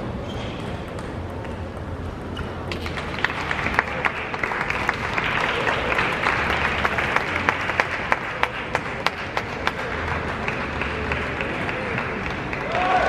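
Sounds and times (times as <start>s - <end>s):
crowd applauding: 2.8s - 13.0s.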